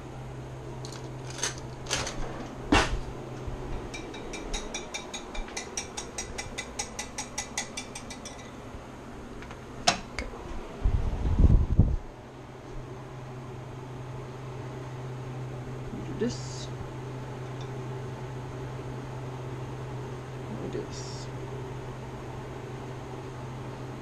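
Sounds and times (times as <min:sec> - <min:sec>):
fork clinking against a bowl: 0:03.9 - 0:08.6.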